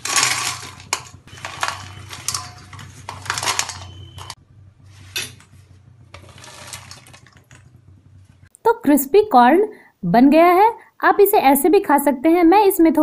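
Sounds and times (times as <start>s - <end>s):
corn kernels rattling in steel bowl: 0.0s - 4.4s, 6.1s - 7.7s.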